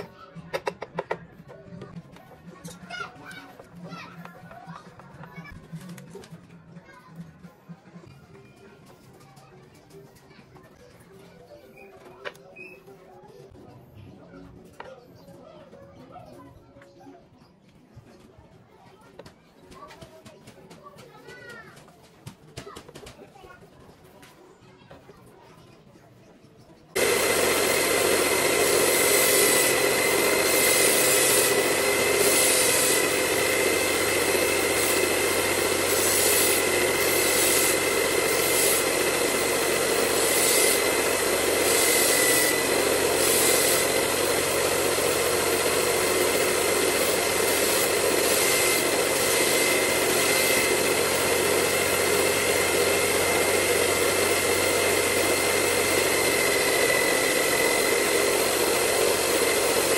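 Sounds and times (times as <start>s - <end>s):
electric drill whining: 27.0s - 59.9s
knife blade grinding on sanding belt: 27.0s - 59.9s.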